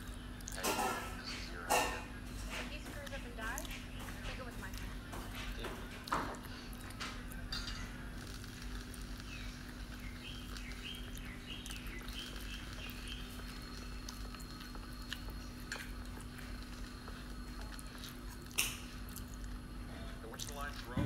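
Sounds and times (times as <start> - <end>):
person chewing: 0.0 - 1.0, 4.7 - 19.7
steady low hum: 0.0 - 21.0.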